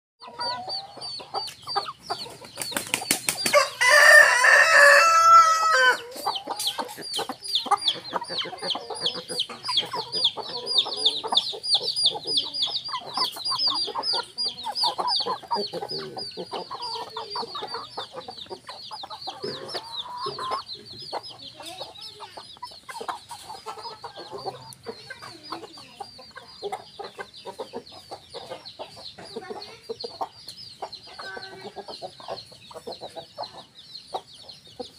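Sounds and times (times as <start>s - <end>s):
chickens clucking: 0.2s - 34.9s
rooster crowing: 3.5s - 6.1s
rapid high-pitched chirping: 6.0s - 34.9s.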